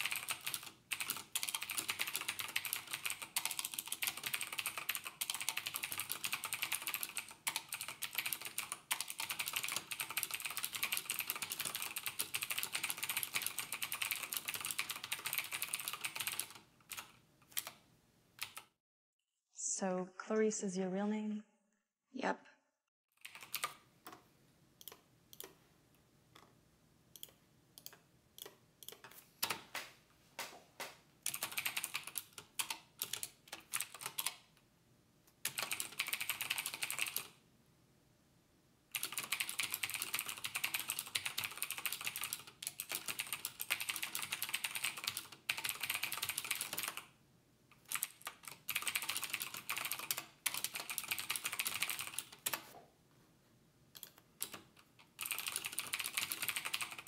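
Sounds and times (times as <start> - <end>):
typing on computer keyboard: 0.0 - 17.8, 18.4 - 18.8, 23.2 - 24.2, 27.2 - 29.8, 31.2 - 34.5, 35.4 - 37.4, 38.9 - 47.1, 47.8 - 52.8, 54.0 - 57.0.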